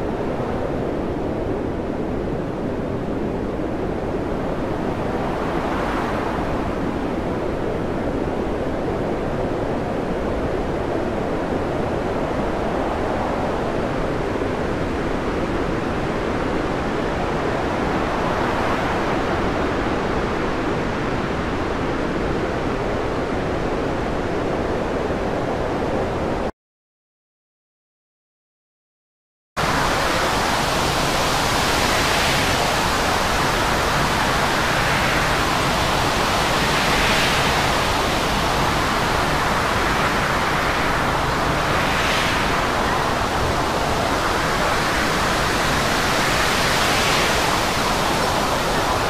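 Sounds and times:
storm wind rushing: 29.6 - 49.0
waves breaking: 29.6 - 49.0.

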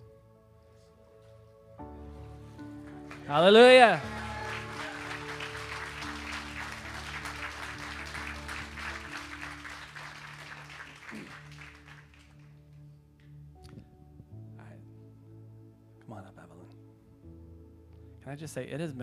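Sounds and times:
soft sustained background music: 0.0 - 19.0
congregation applauding: 2.6 - 12.6.

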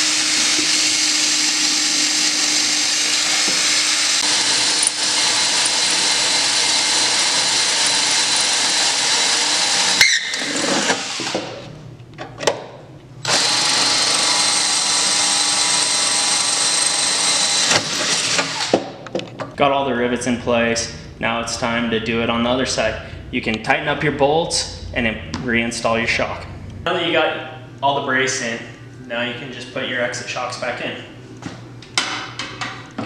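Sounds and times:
cordless drill boring metal: 0.0 - 11.6, 13.2 - 18.8.

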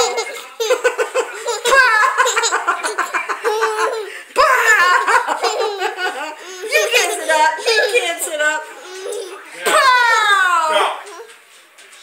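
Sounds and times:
baby laughing: 0.0 - 8.2, 8.8 - 9.7.

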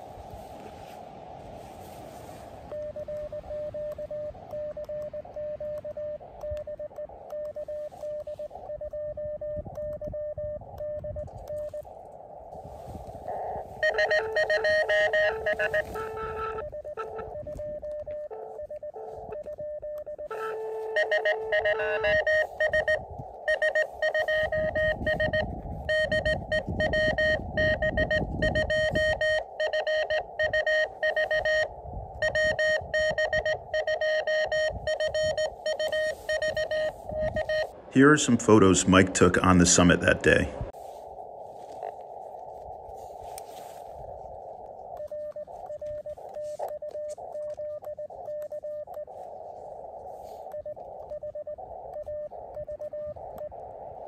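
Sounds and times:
morse code tone: 2.7 - 11.9, 13.3 - 40.2
radio receiver hiss: 28.2 - 54.0.

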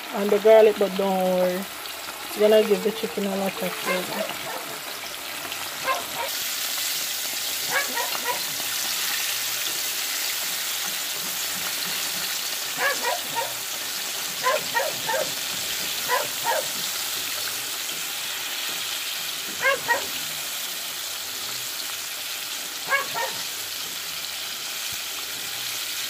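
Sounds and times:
chicken sizzling in hot oil: 0.0 - 26.0.

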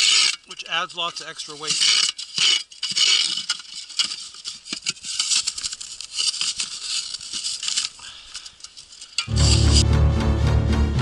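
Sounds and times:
shovel scraping through snow: 0.0 - 7.9, 9.3 - 9.9.

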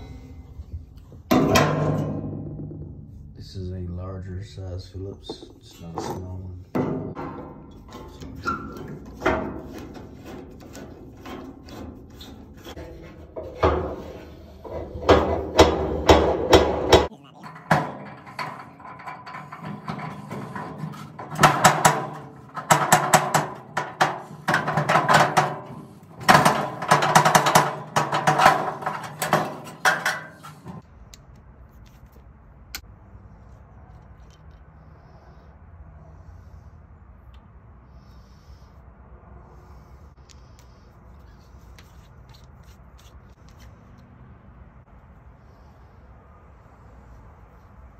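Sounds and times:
metal scraping and clanking: 0.0 - 3.6, 5.2 - 30.8.

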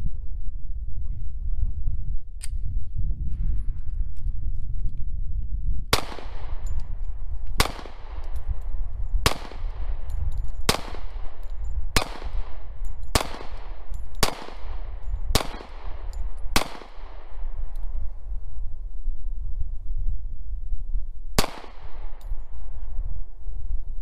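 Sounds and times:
steady low rumble: 0.0 - 24.0
pistol shots with ringing echo: 5.9 - 17.9, 21.4 - 22.8.

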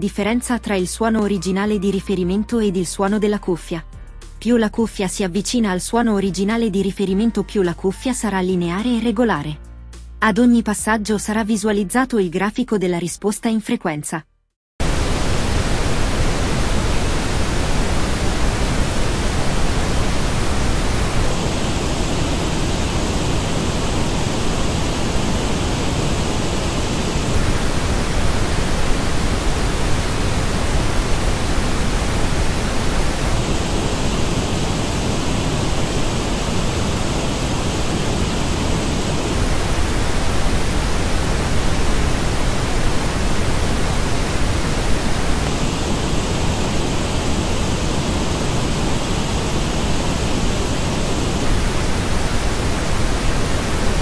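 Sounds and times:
pink noise test signal: 14.8 - 54.0.

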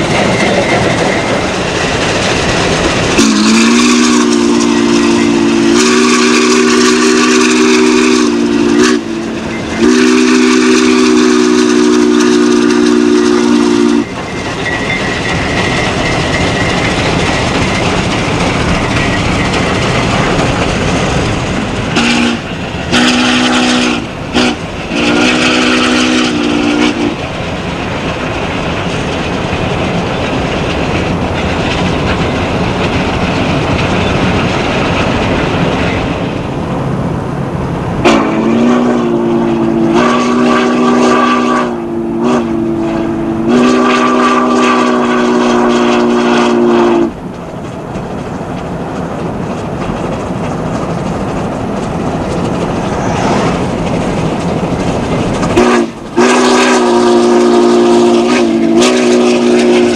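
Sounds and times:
steam locomotive running: 0.0 - 59.9
steam whistle blasts: 3.2 - 14.1, 22.0 - 27.2, 38.0 - 47.2, 55.6 - 59.9.

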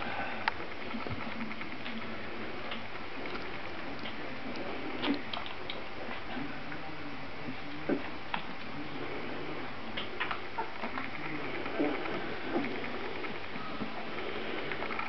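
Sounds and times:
steady hiss: 0.0 - 15.0
small scattered clicks: 0.4 - 6.3, 9.9 - 15.0.

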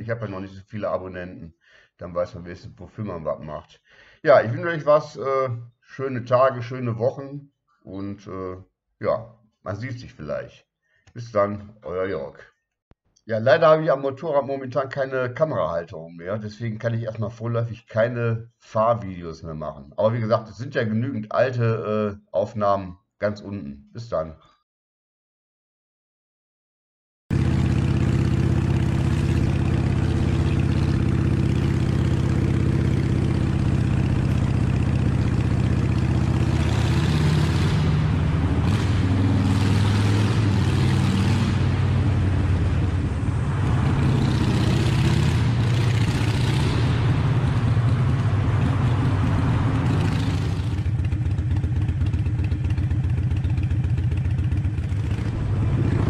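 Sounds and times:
motorcycle engine running: 27.3 - 56.0
rush of noise: 36.4 - 50.9, 55.0 - 56.0.

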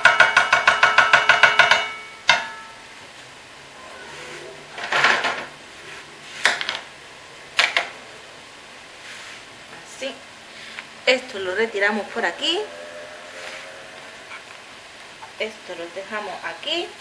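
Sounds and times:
scrape: 4.0 - 4.6, 9.0 - 9.5, 12.6 - 14.5.

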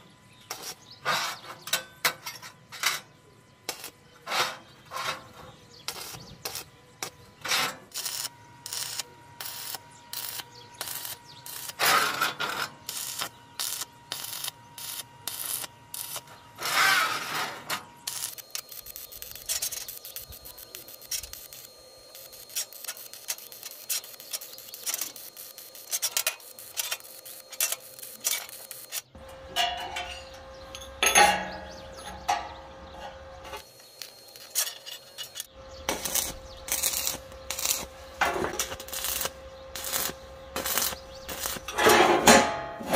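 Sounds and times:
metal scraping: 10.2 - 42.9.

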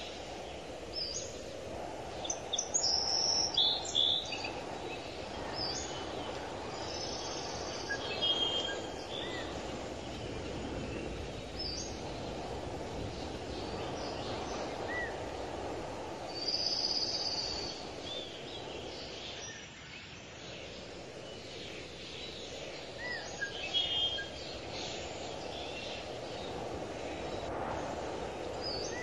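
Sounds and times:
low background hiss: 0.0 - 29.0
birds chirping: 2.1 - 19.6.

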